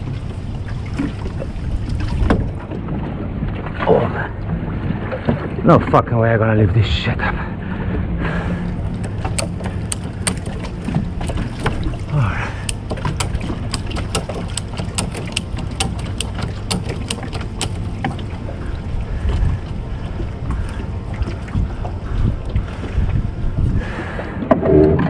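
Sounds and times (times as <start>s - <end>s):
wind on microphone: 0.0s - 5.7s, 7.5s - 25.0s
sharp clicks: 9.0s - 10.7s, 12.6s - 18.1s.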